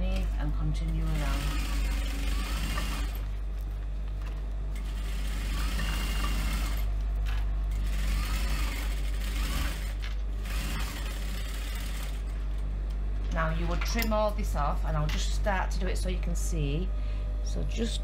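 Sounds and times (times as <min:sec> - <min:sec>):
motor humming: 0:00.0 - 0:18.0
sewing machine stitching: 0:00.9 - 0:03.3, 0:04.8 - 0:06.9, 0:07.8 - 0:12.2.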